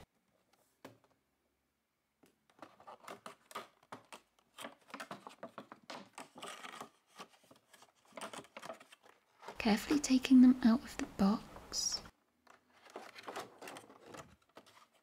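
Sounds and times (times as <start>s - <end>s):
plastic box crinkling and clicking: 2.5s - 9.6s, 12.4s - 15.0s.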